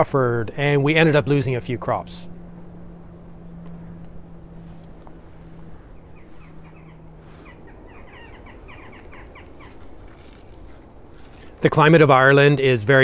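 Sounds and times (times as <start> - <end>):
steady low hum: 0.0 - 13.0
high bird chirps: 5.8 - 10.6.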